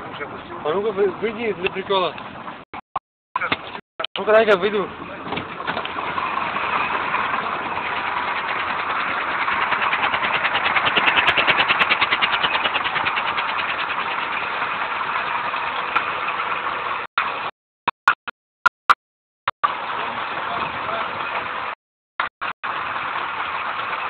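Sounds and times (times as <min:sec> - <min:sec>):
truck engine idling: 0:03.4 - 0:17.5, 0:19.6 - 0:24.0.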